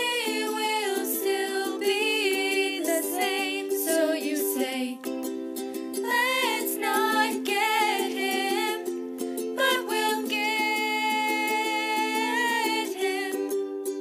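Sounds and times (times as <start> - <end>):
girls singing: 0.0 - 5.3, 6.0 - 13.8
ukulele strumming: 0.0 - 14.0.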